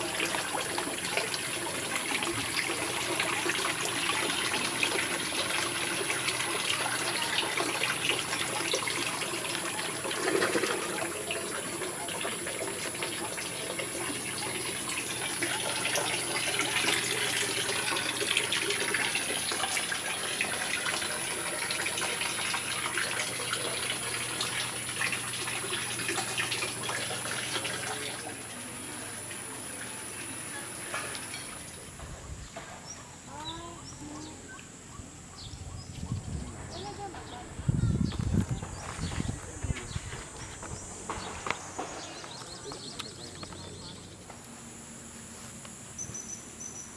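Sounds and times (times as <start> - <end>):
water running and splashing: 0.0 - 32.0.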